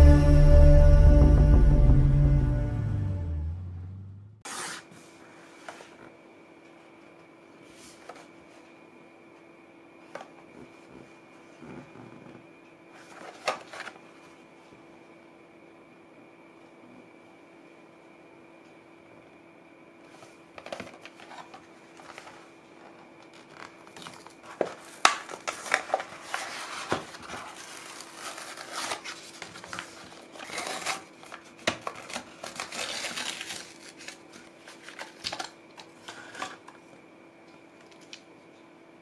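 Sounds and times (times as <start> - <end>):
cardboard tearing: 4.5 - 4.9, 23.3 - 35.5
plastic crinkling: 20.7 - 36.4.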